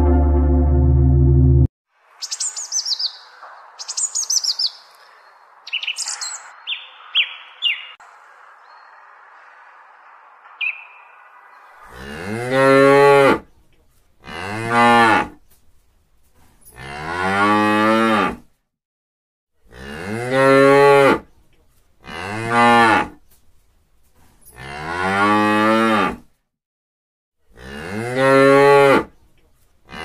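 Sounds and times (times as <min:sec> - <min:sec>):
cow mooing: 0:11.8 - 0:13.4, 0:16.8 - 0:18.4, 0:19.7 - 0:21.2, 0:24.6 - 0:26.2, 0:27.5 - 0:29.1.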